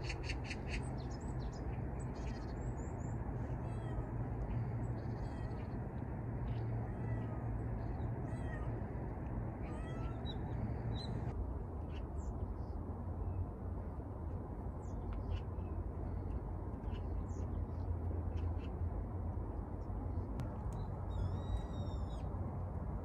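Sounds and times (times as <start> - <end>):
outdoor background noise: 0.0 - 23.0
cat meowing: 3.6 - 4.1, 5.0 - 5.8, 6.6 - 8.8, 9.6 - 10.8.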